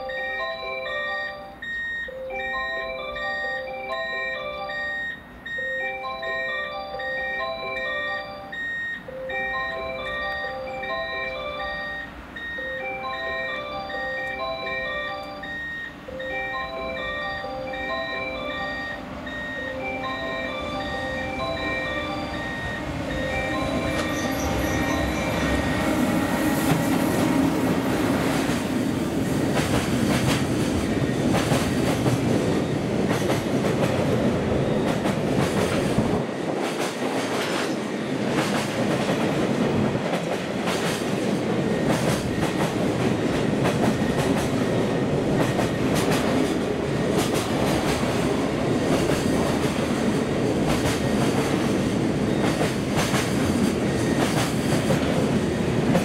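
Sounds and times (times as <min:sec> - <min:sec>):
train wheels rumbling on rails: 0:17.7 - 0:56.0.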